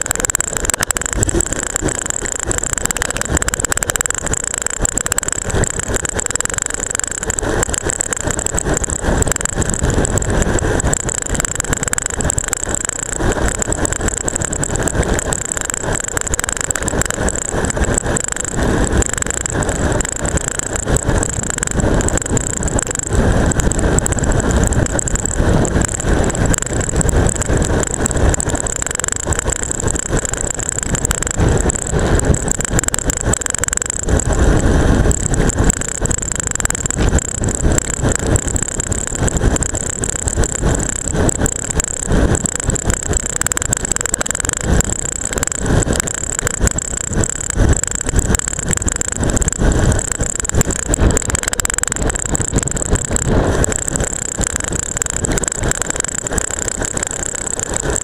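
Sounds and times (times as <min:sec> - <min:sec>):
camera rattling: 0:00.0 - 0:58.0
wind rush: 0:00.0 - 0:58.0.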